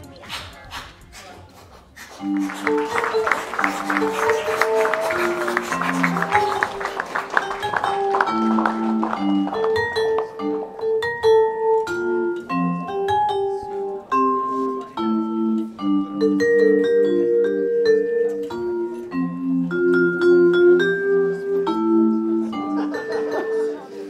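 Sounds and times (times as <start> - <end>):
vibraphone melody: 2.2 - 24.0.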